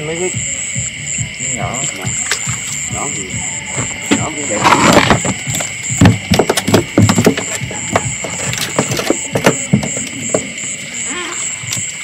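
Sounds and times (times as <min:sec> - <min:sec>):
insects and frogs trilling: 0:00.0 - 0:12.0
sharp knocks: 0:03.8 - 0:10.5.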